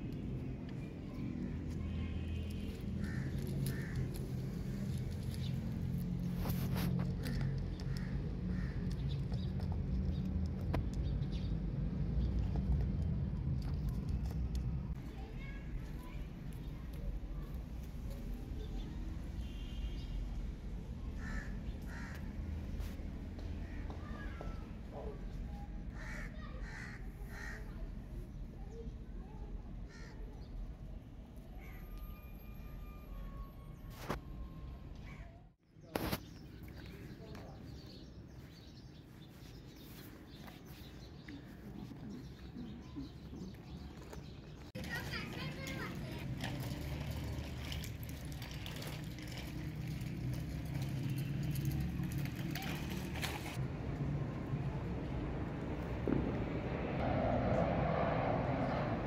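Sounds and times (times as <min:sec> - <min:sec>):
crow cawing: 0:03.0 - 0:04.0, 0:21.2 - 0:22.3, 0:26.0 - 0:27.7.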